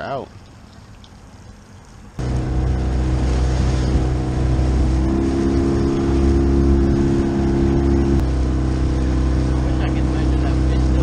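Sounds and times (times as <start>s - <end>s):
higher hum: 2.2s - 11.0s
outboard motor running: 2.2s - 11.0s.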